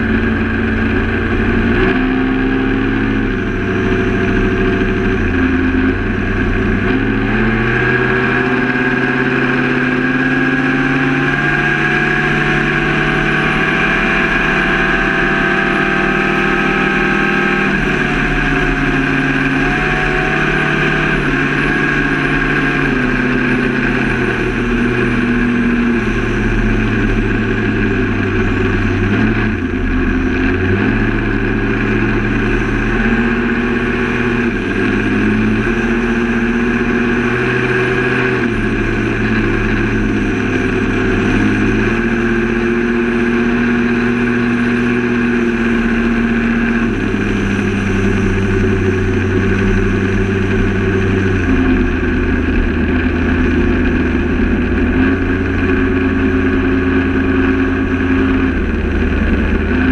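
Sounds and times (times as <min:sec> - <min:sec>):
outboard engine running: 0:00.0 - 0:59.9
wind: 0:00.0 - 0:59.9.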